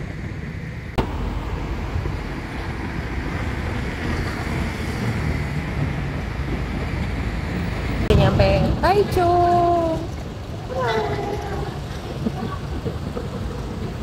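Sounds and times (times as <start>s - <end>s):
cars and motor scooters passing: 0.1s - 14.0s.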